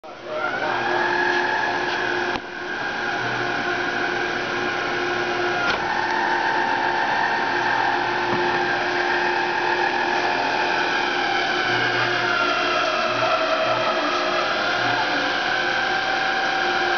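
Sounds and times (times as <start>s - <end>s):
roller machine whine: 0.1s - 16.9s.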